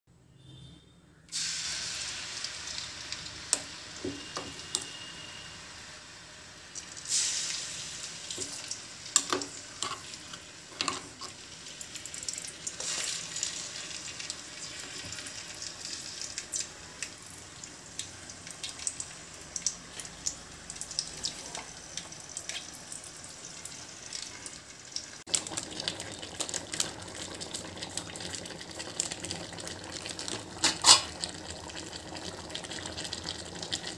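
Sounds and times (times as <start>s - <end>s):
oil sizzling and crackling in a pan: 1.3s - 33.9s.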